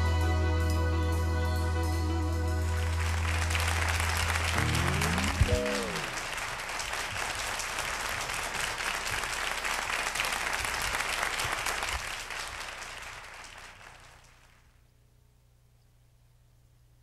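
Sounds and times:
audience applauding: 2.8s - 14.6s.

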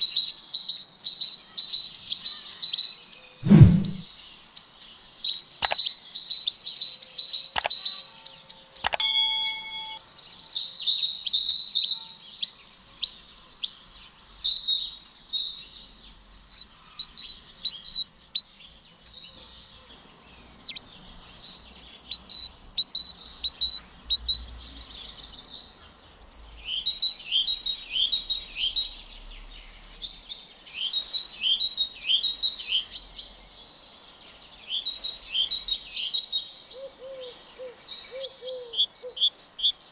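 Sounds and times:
songbirds chirping trills: 0.0s - 39.9s
sharp clicks: 5.6s - 5.9s, 7.6s - 7.8s, 8.8s - 10.0s.

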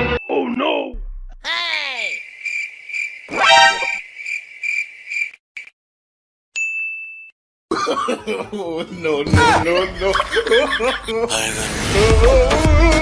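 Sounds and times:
pulsing whistle-like tone: 3.3s - 4.0s
short high beep: 3.4s - 4.0s.

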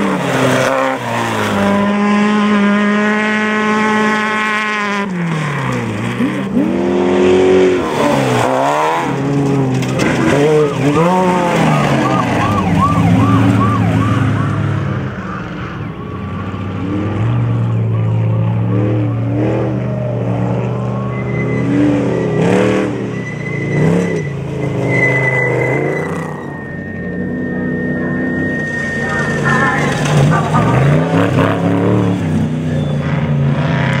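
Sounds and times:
off-road engines revving: 0.0s - 34.0s.

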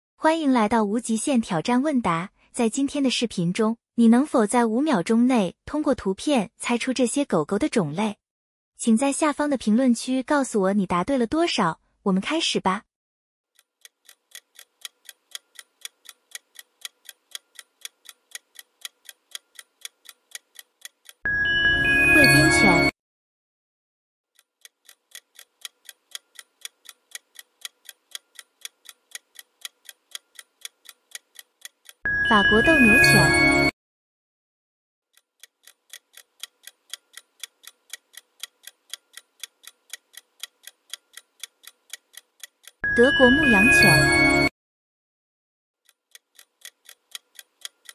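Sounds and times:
clock ticking: 13.6s - 21.2s, 24.4s - 32.0s, 35.1s - 42.8s, 45.8s - 47.9s.

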